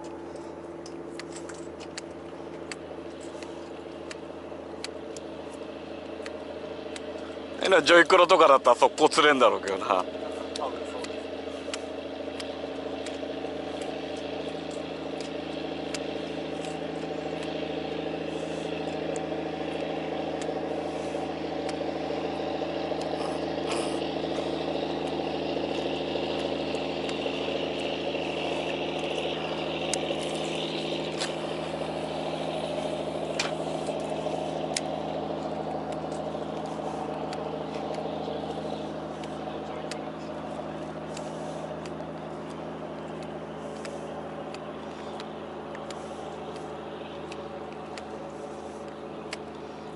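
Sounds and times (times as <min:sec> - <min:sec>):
sharp ticks: 0:00.0 - 0:07.4, 0:08.8 - 0:23.5
boat engine idling: 0:00.0 - 0:49.9.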